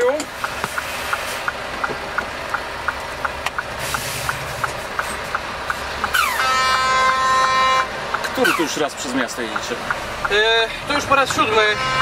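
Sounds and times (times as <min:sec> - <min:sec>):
turn signal relay ticking: 0:00.0 - 0:11.7
truck air horn blast: 0:06.1 - 0:08.7, 0:11.5 - 0:12.0.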